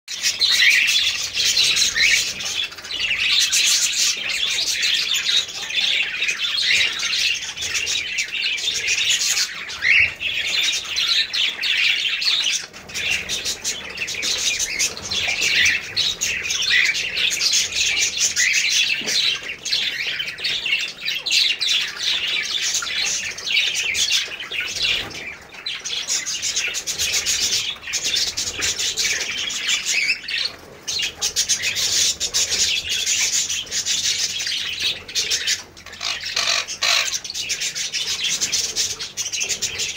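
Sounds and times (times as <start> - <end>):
parakeets chirping and squawking: 0.1 - 39.9.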